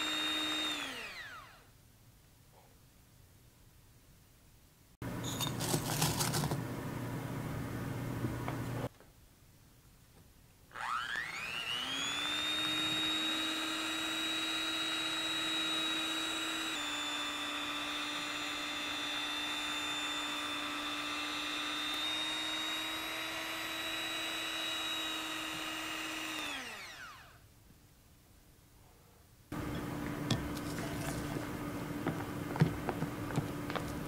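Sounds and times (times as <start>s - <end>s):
electric hand mixer whirring: 0.0s - 1.6s, 10.7s - 27.4s.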